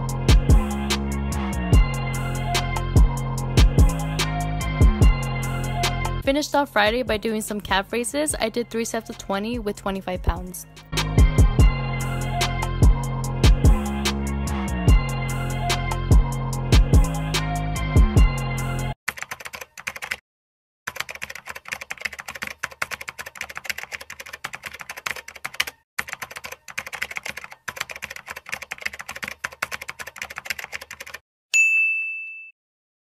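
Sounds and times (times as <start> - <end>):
hip-hop music with deep bass: 0.0 - 6.2, 8.3 - 18.9
rapid typing key clicks: 19.1 - 20.2, 20.9 - 31.2
bright bell ding: 31.6 - 32.6.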